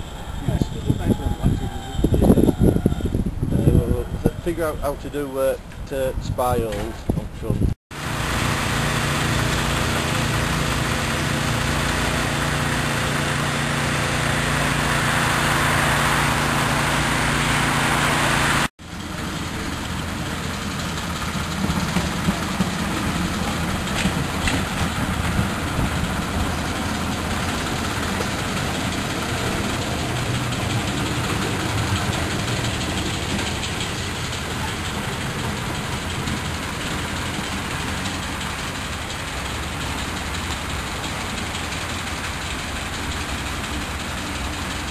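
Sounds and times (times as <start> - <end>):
diesel engine humming: 0.0 - 6.5, 7.5 - 44.9
train wheels clicking: 19.1 - 44.9.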